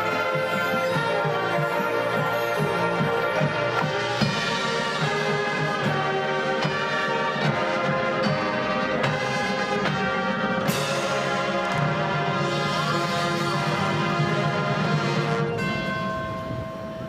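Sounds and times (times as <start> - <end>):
marching band brass chords: 0.0 - 16.6
percussion strikes: 0.0 - 17.0.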